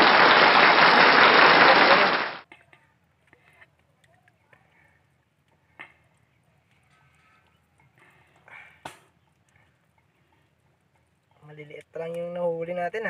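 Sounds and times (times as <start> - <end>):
loud rush of noise: 0.0 - 2.4
faint clicks: 2.5 - 12.2.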